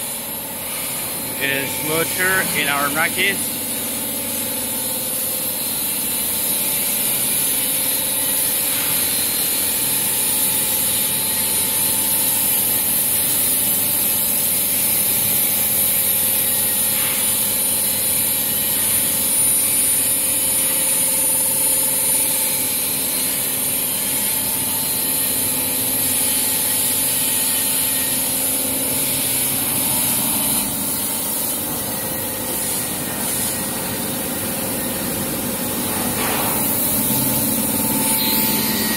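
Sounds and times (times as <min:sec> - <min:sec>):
steady machine hiss: 0:00.0 - 0:38.9.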